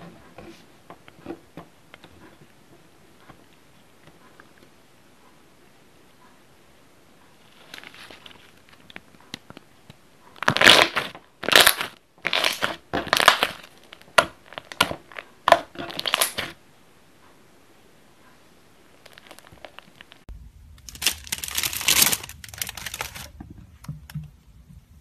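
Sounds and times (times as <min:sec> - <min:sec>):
slime crackling and popping: 0:10.4 - 0:16.6, 0:19.0 - 0:23.3.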